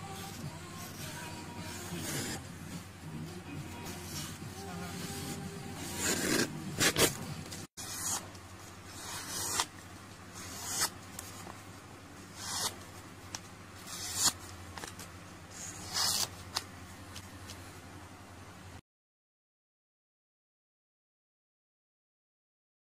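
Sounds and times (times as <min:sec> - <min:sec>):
paper scraping against knife blade: 0:00.2 - 0:02.5, 0:03.8 - 0:07.2, 0:07.8 - 0:08.3, 0:08.9 - 0:09.7, 0:10.4 - 0:11.4, 0:12.3 - 0:12.8, 0:13.8 - 0:16.6.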